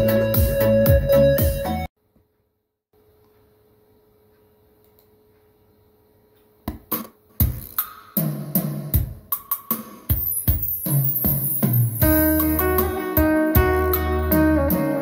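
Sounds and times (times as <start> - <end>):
song with drums and deep bass: 0.0 - 1.9, 7.4 - 15.0.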